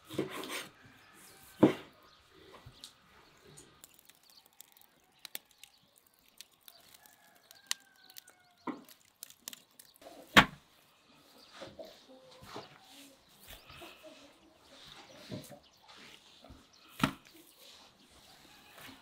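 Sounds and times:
distant rooster crowing: 0.5 - 2.1, 6.6 - 9.0, 18.2 - 19.0.

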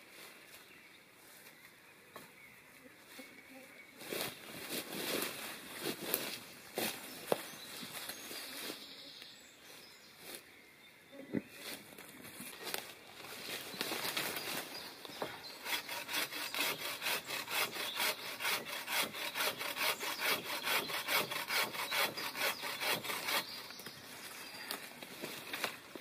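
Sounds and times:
bow saw cutting wood: 15.5 - 23.8.

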